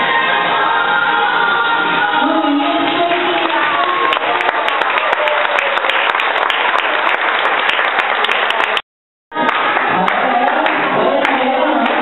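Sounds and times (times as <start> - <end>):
crowd clapping: 2.8 - 12.0.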